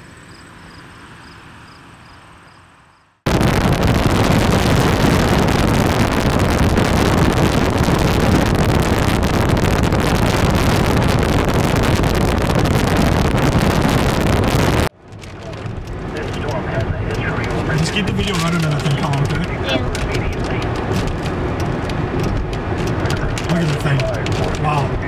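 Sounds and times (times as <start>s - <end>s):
wind buffeting microphone: 3.3s - 17.7s.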